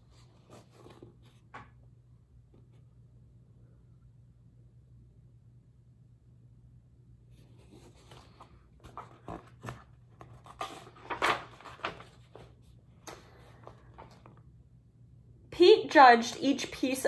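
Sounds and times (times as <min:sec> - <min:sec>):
paper pages rustling: 0:00.0 - 0:01.7, 0:07.4 - 0:14.5.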